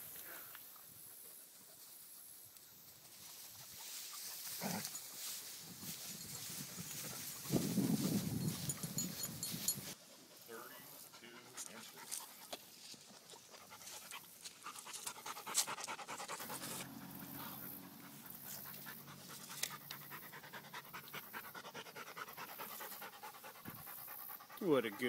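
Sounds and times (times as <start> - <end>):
dog panting rapidly: 6.4 - 25.0.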